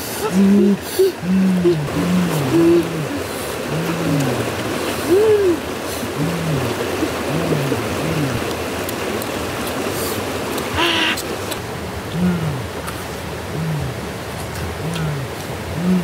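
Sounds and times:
people humming while chewing: 0.0 - 8.5, 12.1 - 16.0
stream rushing: 0.0 - 16.0.

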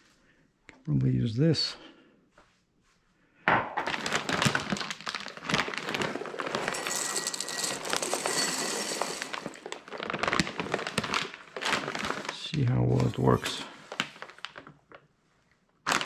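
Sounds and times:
dry grains pouring: 4.0 - 13.9.

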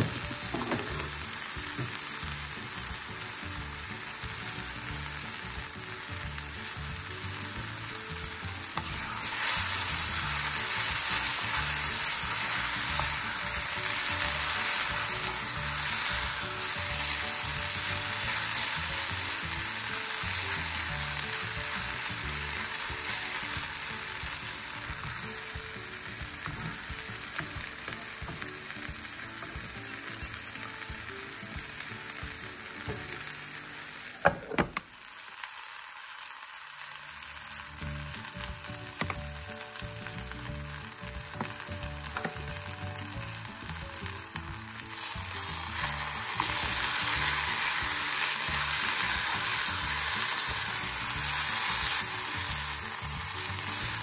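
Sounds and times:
vegetables sizzling in a pot: 0.0 - 54.0.

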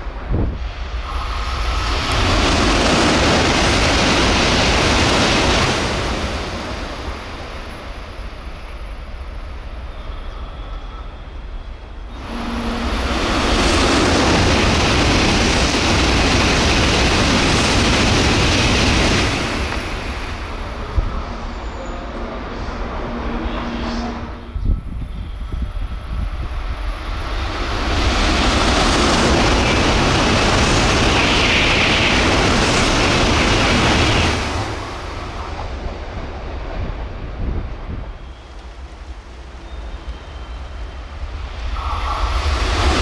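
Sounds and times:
high-speed train rushing roar: 0.0 - 43.0
low wind rumble: 0.0 - 43.0.

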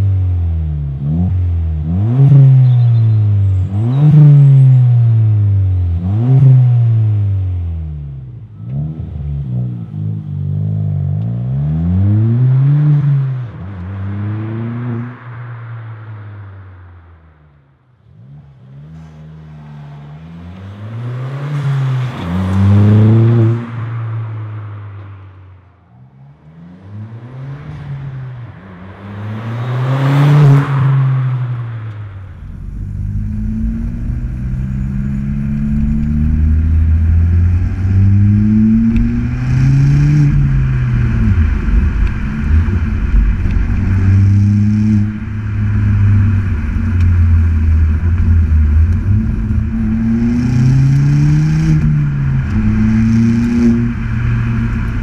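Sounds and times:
car engine accelerating: 0.0 - 55.0
road noise: 0.0 - 55.0
deep exhaust note: 27.3 - 55.0.

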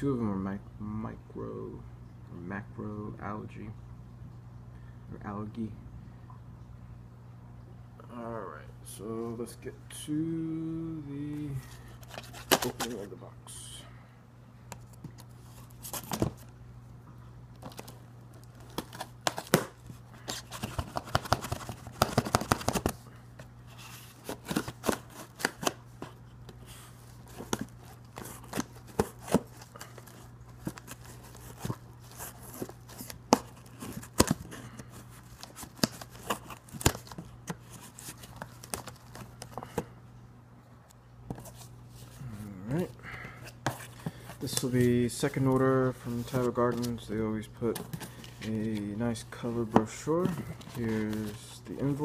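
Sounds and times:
steady low hum: 0.0 - 52.0
cardboard crackling: 11.4 - 13.1, 14.8 - 16.5, 17.6 - 23.0, 23.7 - 39.9, 41.3 - 52.0.

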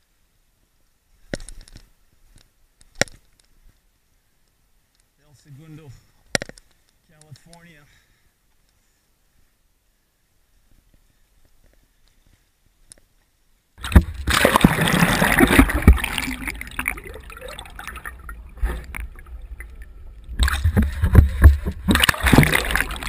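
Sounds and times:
water splashing and sloshing: 13.8 - 23.0.

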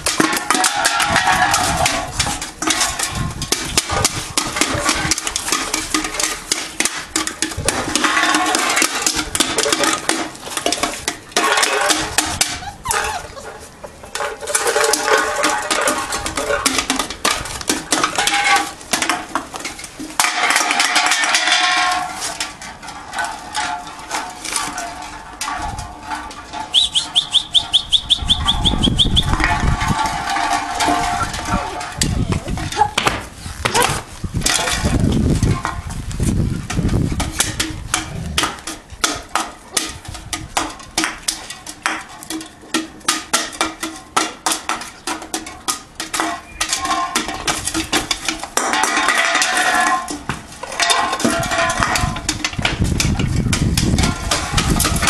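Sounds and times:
cans and bottles clattering on tiles: 0.0 - 55.0
puppies whining and yipping: 12.3 - 14.0.

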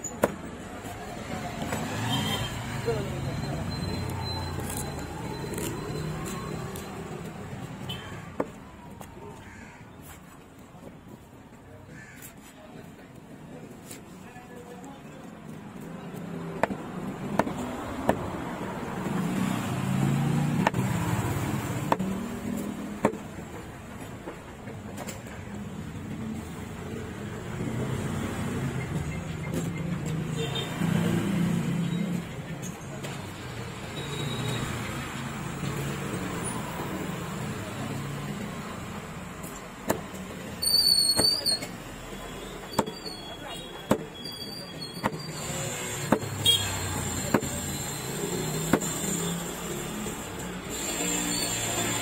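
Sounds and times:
knife chopping on wooden block: 16.6 - 18.4, 47.2 - 47.5.

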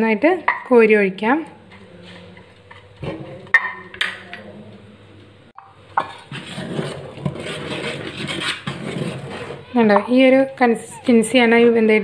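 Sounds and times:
metal kitchenware scraping: 5.9 - 10.5.

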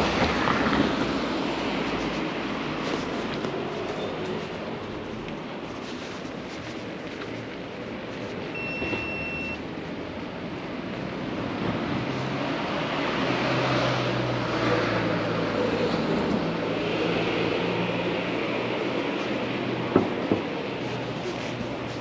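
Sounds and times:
brief high beep: 8.6 - 9.6.

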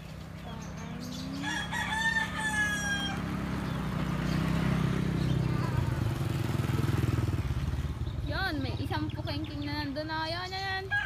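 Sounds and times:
engine droning: 0.0 - 10.7
rooster crowing: 1.3 - 3.5.

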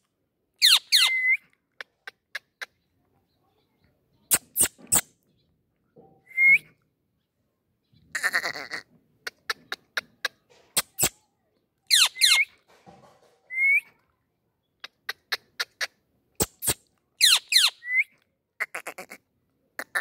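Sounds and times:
parakeet screechy calls: 0.6 - 1.2, 11.9 - 12.4, 16.6 - 17.8.

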